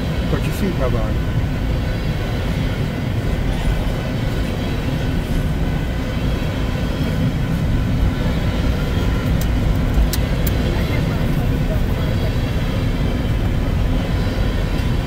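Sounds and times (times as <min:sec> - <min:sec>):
steel wheels rumbling on rails: 0:00.0 - 0:15.0.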